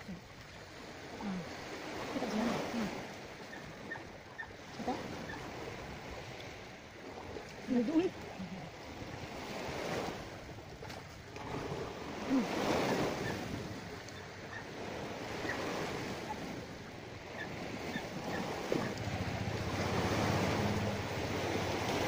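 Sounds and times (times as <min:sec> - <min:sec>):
sea waves washing in: 0:00.0 - 0:22.0
wind on microphone: 0:00.7 - 0:22.0.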